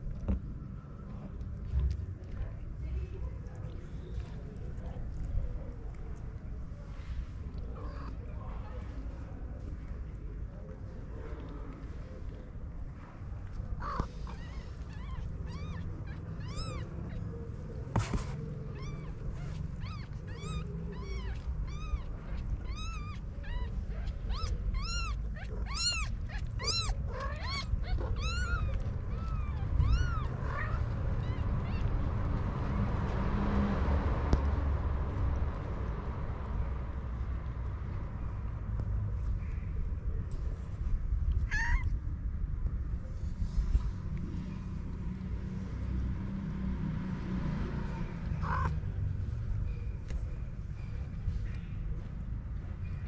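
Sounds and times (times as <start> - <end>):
newborn kittens mewing: 13.8 - 31.9, 41.4 - 41.9, 48.4 - 48.7.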